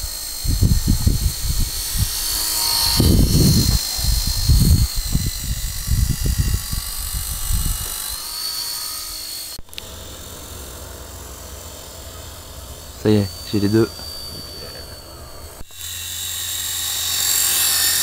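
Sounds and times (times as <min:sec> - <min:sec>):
wind buffeting microphone: 0:00.0 - 0:08.3
model plane motor whine: 0:00.0 - 0:18.0.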